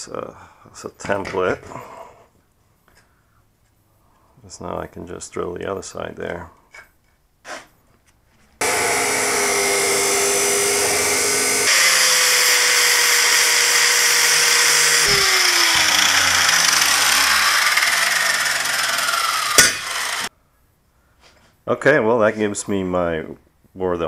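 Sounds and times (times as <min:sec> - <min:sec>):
grinder grinding metal: 0:08.6 - 0:20.3
motor spinning down: 0:08.6 - 0:20.3
power drill drilling steel: 0:08.6 - 0:20.3.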